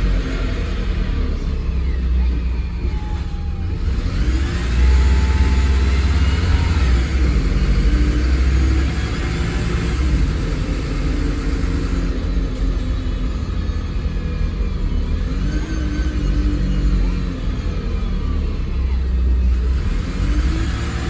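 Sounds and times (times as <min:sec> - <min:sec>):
bus engine rumble: 0:00.0 - 0:21.0.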